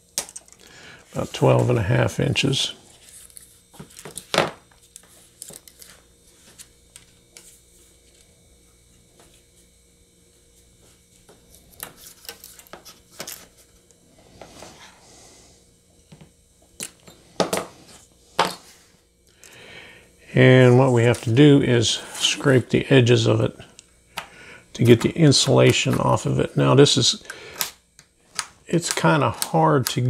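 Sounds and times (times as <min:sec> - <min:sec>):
hand tools clicking and tapping: 0:27.2 - 0:30.0.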